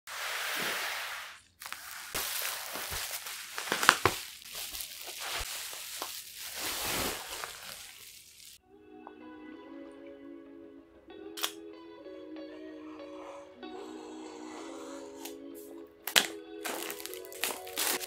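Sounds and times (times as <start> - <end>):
bubble wrap crinkling: 0.1 - 8.6, 16.1 - 18.0.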